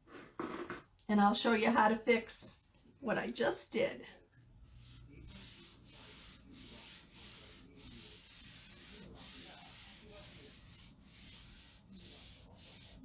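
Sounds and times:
paper towel wiping a cutting mat: 4.5 - 13.0.

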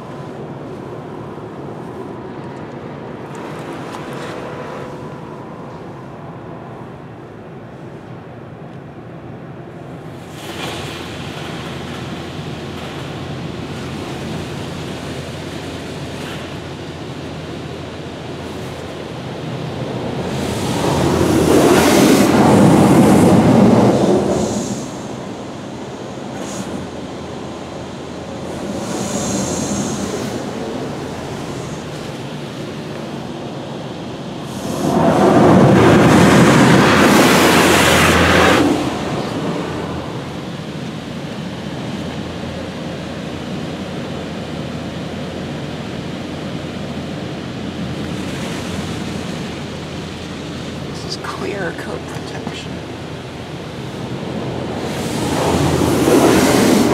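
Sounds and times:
water jets spraying car: 49.5 - 56.9.

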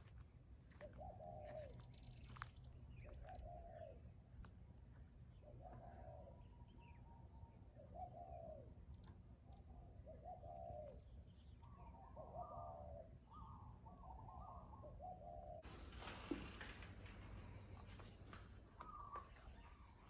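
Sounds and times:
faint dove cooing: 0.8 - 2.1, 3.1 - 4.1, 5.4 - 6.7, 7.7 - 8.8, 9.4 - 20.0.

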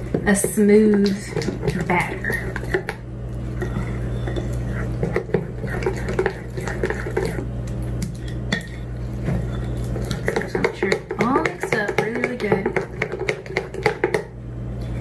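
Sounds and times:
steady low hum: 0.0 - 15.0
metal spoon scraping glass bowl: 3.6 - 7.4.

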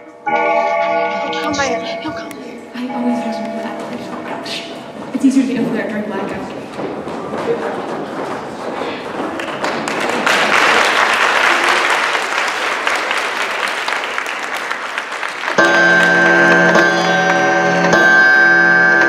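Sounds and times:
audience applauding: 8.8 - 17.8.

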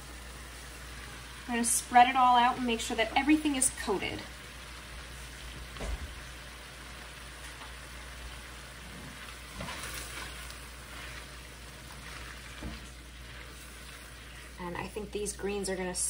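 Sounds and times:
vegetables sizzling in a wok: 0.0 - 16.0
spatula stirring in a wok: 6.4 - 15.3.

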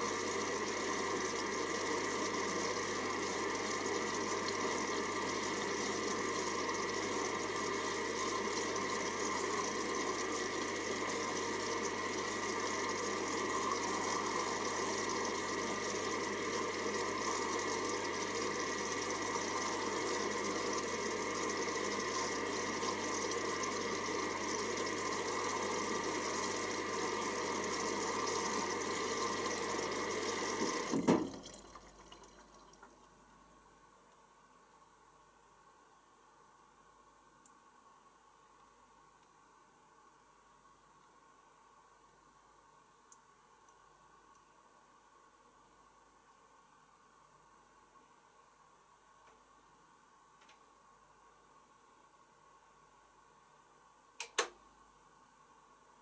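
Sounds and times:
water rushing into washing machine: 0.0 - 33.0.

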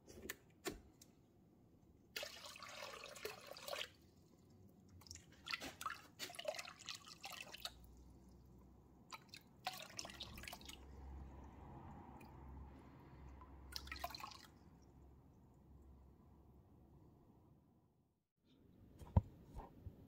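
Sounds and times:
water splashing and dripping: 2.1 - 16.0.

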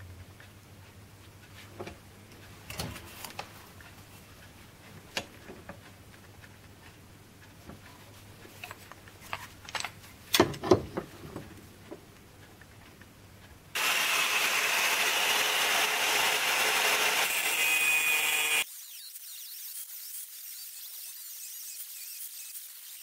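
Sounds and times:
angle grinder grinding steel: 13.8 - 23.0.

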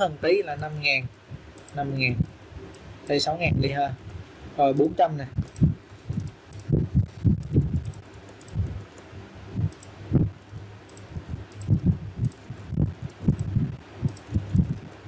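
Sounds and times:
keyboard keystrokes: 5.4 - 9.1, 9.7 - 15.0.

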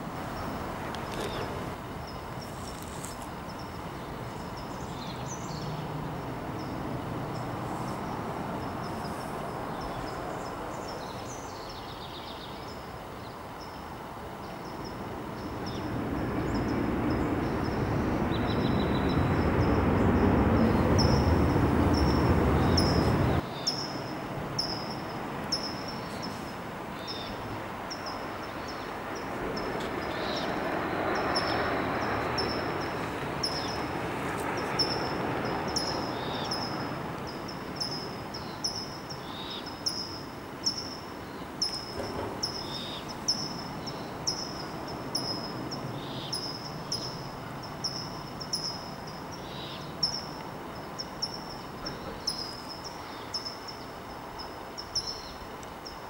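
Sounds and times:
small birds chirping: 0.4 - 5.9, 8.8 - 24.0.

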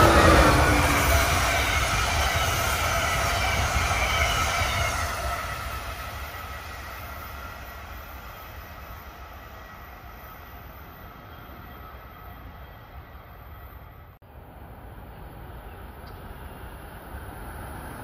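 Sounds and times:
train wheels rumbling on rails: 0.0 - 14.2.

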